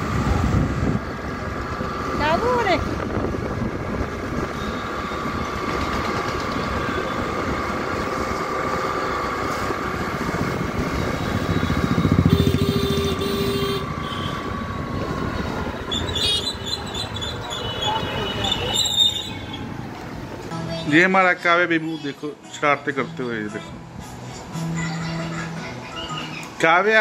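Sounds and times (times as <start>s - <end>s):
motorbike engine running: 0.0s - 20.5s
road and wind noise: 0.0s - 27.0s.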